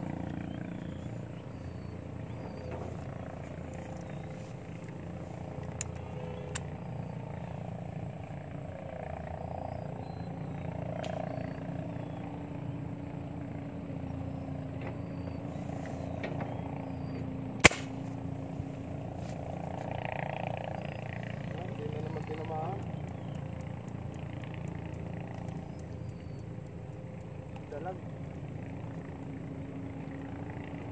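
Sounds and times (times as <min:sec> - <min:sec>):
low background hum: 0:00.0 - 0:30.9
gun firing sharp crack: 0:17.6 - 0:18.2.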